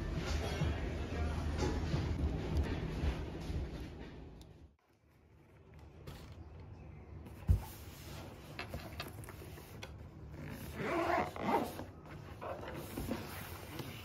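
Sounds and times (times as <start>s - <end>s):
zipper rasp: 10.4s - 14.0s.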